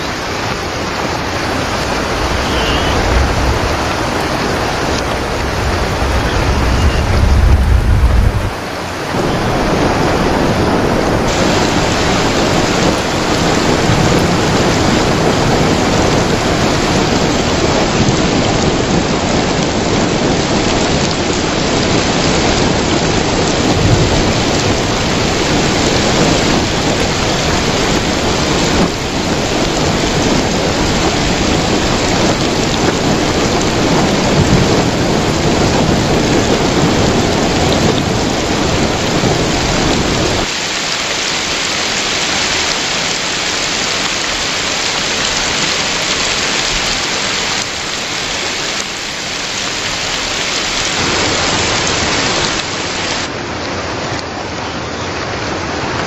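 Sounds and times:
heavy rain splashing: 0.0 - 56.0
deep low rumble: 1.5 - 8.8.

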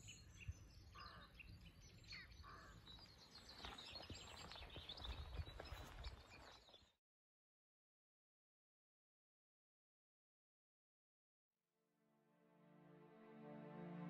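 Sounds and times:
small birds chirping: 0.0 - 7.0.

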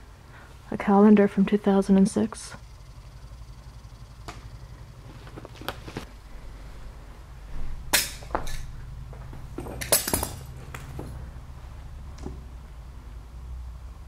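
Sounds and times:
steady low hum: 0.0 - 14.0
footsteps crunching on debris: 5.0 - 6.1.

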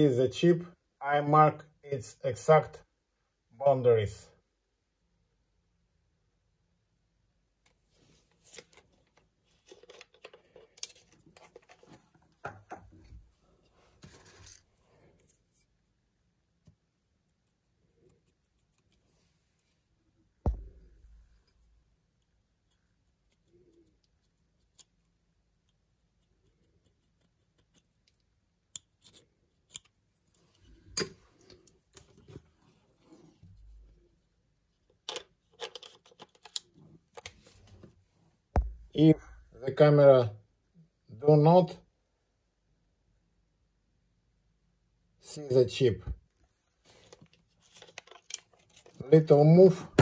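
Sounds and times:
sharp knocks: 20.5 - 21.0, 38.6 - 39.0
metal tool knocking on table: 38.6 - 38.9
camera handling clicks and rubbing: 47.1 - 49.0.

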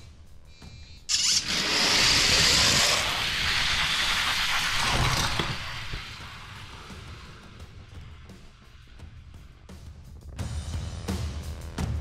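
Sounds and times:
toy car wheels rolling on plastic: 1.1 - 7.3.

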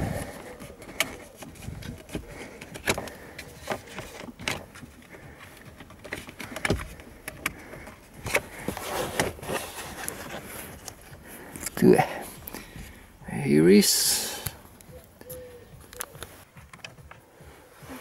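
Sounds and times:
clicks and knocks of tools handling parts: 0.0 - 11.8.

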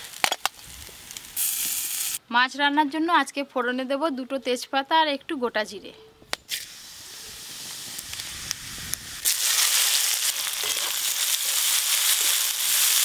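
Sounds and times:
oil sizzling in wok: 0.0 - 2.2, 6.5 - 13.0.

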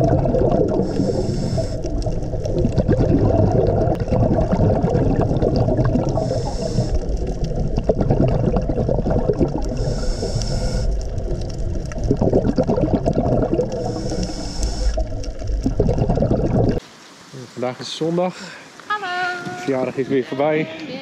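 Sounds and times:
bubbling exhalations: 0.0 - 16.8
hissing regulator inhalations: 0.6 - 2.3, 6.0 - 7.5, 9.6 - 11.3, 13.6 - 15.4.

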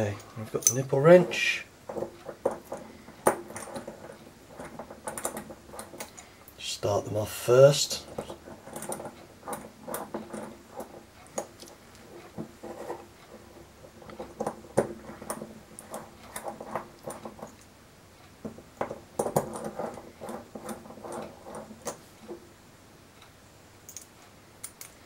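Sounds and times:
wrench tip clinking on metal: 0.6 - 0.9
small metallic clicks: 23.2 - 25.0.

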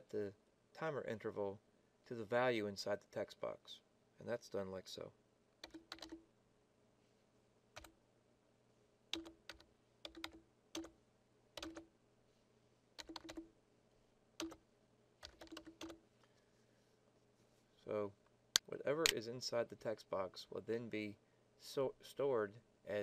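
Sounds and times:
faint keyboard typing: 5.6 - 6.3, 7.7 - 8.0, 9.1 - 11.0, 11.6 - 11.9, 12.9 - 13.5, 14.4 - 16.4.

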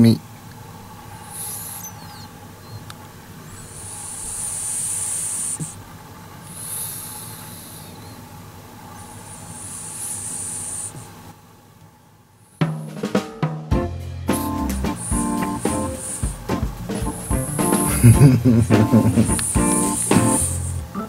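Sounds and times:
faint steady hum: 0.0 - 12.8, 13.7 - 21.0
dog snoring: 1.2 - 2.3, 3.6 - 5.8, 9.0 - 11.1, 17.1 - 21.0.

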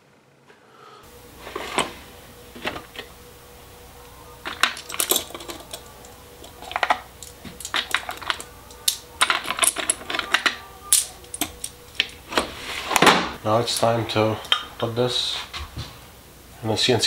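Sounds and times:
small metal tools clinking: 4.4 - 12.2.

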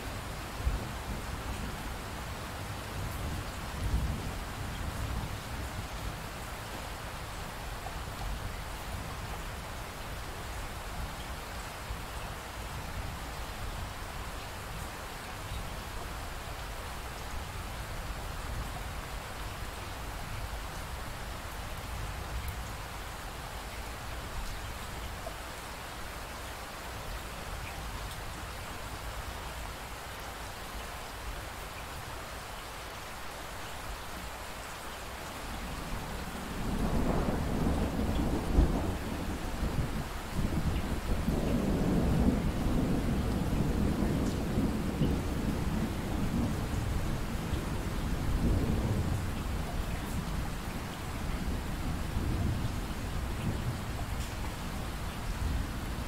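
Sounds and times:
rain hiss: 0.0 - 56.0
low rumble of thunder: 0.2 - 6.5, 35.6 - 56.0.

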